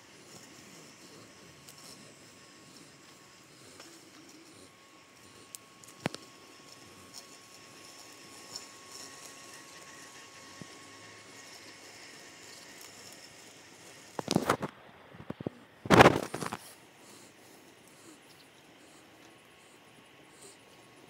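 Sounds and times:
robotic lawn mower whine: 0:00.0 - 0:14.7.

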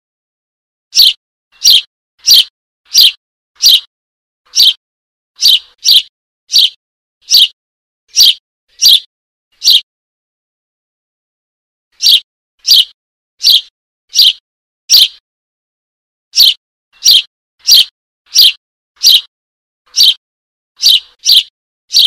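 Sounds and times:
bird chick chirping: 0:00.9 - 0:03.9, 0:04.5 - 0:04.8, 0:05.4 - 0:09.9, 0:12.0 - 0:15.2, 0:16.4 - 0:19.3, 0:19.9 - 0:20.2, 0:20.8 - 0:22.0.

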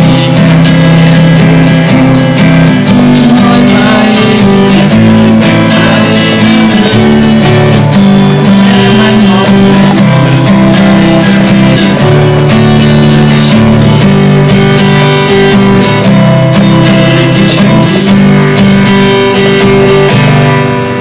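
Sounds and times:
acoustic guitar strumming: 0:00.0 - 0:21.0.

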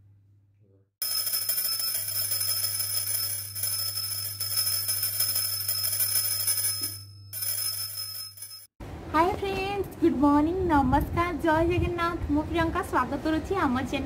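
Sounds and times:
hand bell ringing: 0:01.0 - 0:08.7.

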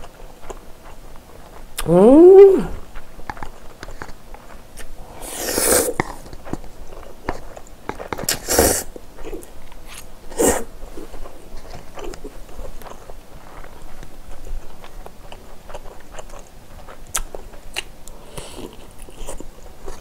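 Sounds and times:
wet chewing of noodles: 0:00.0 - 0:20.0
noisy slurps: 0:04.8 - 0:06.6.

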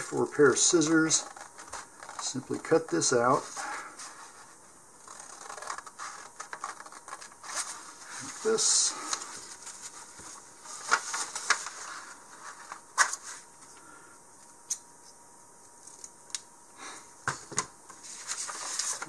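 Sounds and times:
paper rustling: 0:00.5 - 0:13.5, 0:17.9 - 0:19.0.

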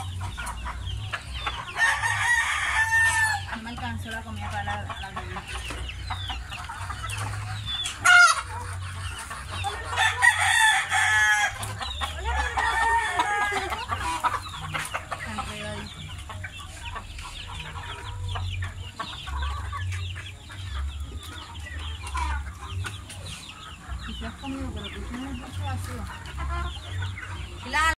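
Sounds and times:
chickens clucking: 0:00.0 - 0:28.0
rooster crowing: 0:01.8 - 0:03.4, 0:10.0 - 0:11.6
chicken squawk: 0:06.6 - 0:15.8.

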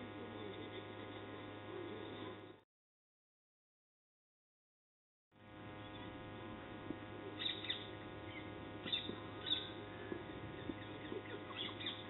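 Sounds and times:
low field ambience hum: 0:00.0 - 0:02.6, 0:05.4 - 0:12.0
birds chirping: 0:07.4 - 0:12.0.

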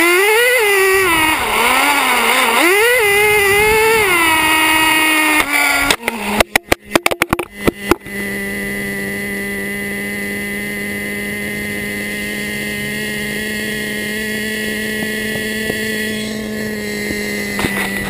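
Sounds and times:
small nitro engine running: 0:00.0 - 0:18.0.

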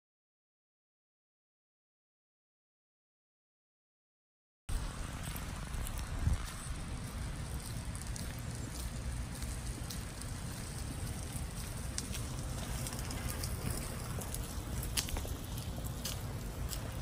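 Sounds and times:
crackling rustle: 0:04.7 - 0:17.0
wind rumbling on microphone: 0:04.7 - 0:17.0.

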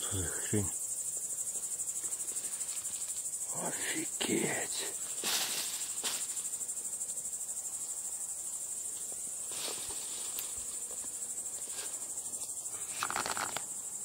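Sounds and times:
crickets chirping: 0:00.0 - 0:14.0
faint rustles: 0:04.9 - 0:06.5, 0:09.0 - 0:13.7.

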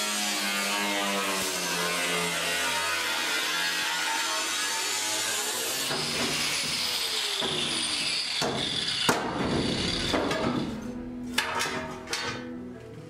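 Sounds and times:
angle grinder cutting steel: 0:00.0 - 0:10.9.

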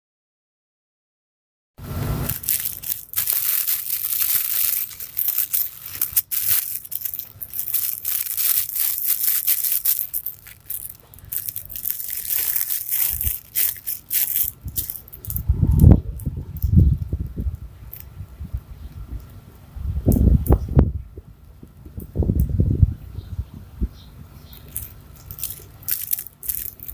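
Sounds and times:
cloth book crinkling: 0:02.1 - 0:15.4, 0:24.6 - 0:26.9.

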